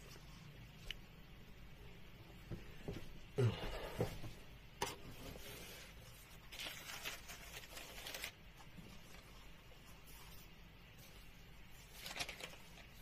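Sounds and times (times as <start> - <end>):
paper pages rustling: 5.2 - 13.0.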